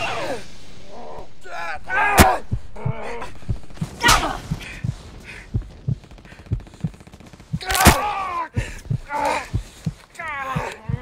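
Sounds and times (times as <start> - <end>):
heartbeat thuds: 2.2 - 7.7, 8.6 - 11.0.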